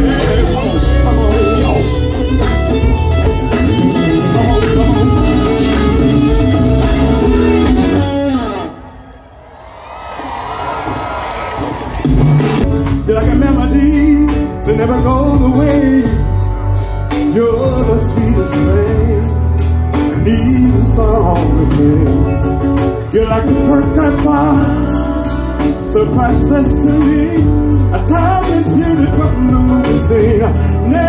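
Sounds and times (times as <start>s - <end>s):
steady drum beat: 0.0s - 8.0s
bass: 0.0s - 8.7s, 12.0s - 31.0s
sliding melodic lead line: 0.0s - 9.0s, 12.4s - 31.0s
live band music: 0.0s - 9.2s, 10.8s - 31.0s.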